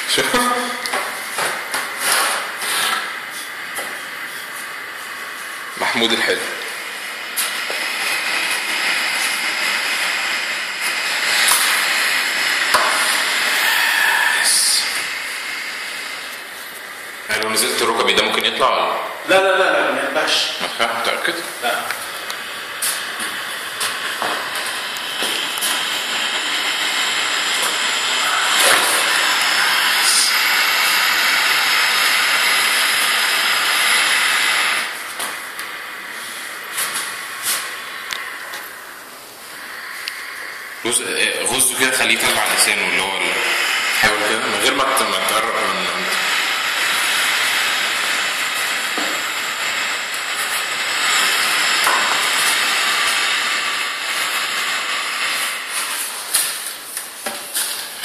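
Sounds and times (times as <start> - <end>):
lizard hissing: 12.7 - 15.9, 24.7 - 34.9, 35.9 - 42.3.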